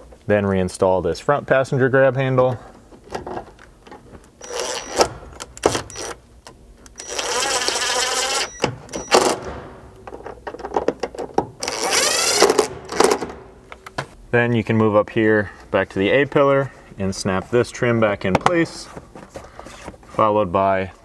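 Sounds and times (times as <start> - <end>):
cordless drill driving screws: 7.0 - 8.6, 11.6 - 13.2.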